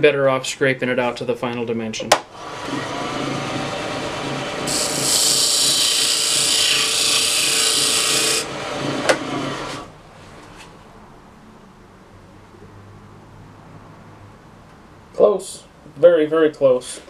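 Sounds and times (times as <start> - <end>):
wood lathe running: 2.4 - 9.9.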